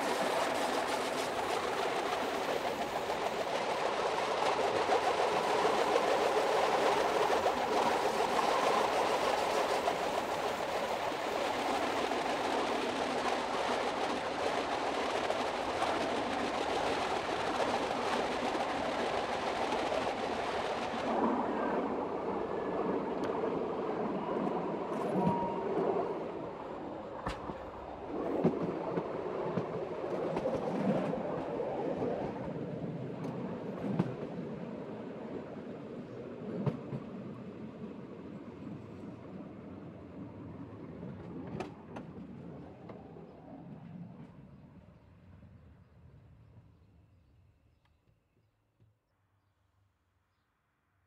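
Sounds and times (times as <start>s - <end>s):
train rolling noise: 0.0s - 47.0s.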